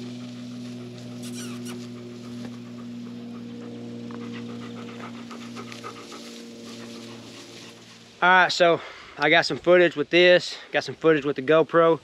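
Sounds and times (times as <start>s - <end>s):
dog panting: 0.0s - 7.9s.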